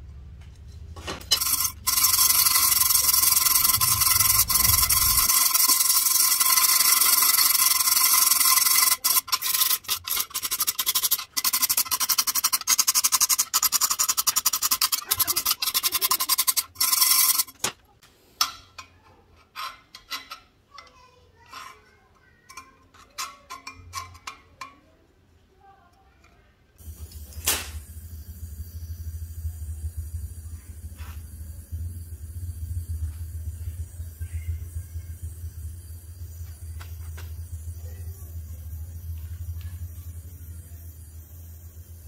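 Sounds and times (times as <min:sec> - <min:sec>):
wire brush scrubbing metal: 0:00.7 - 0:17.8, 0:26.8 - 0:42.0.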